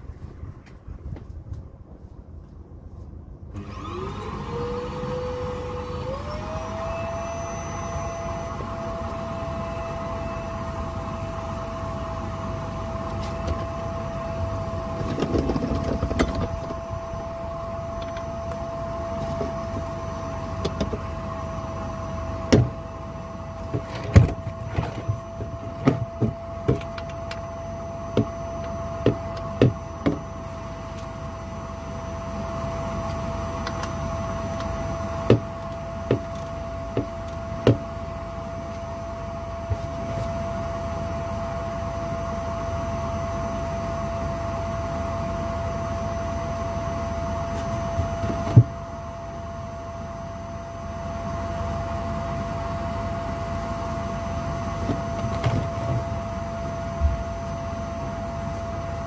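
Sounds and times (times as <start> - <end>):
vacuum cleaner humming: 3.6 - 41.5, 54.0 - 59.0.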